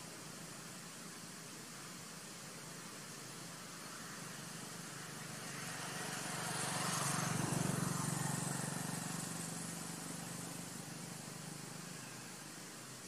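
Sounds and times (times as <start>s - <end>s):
vehicle engine passing by: 3.9s - 12.4s.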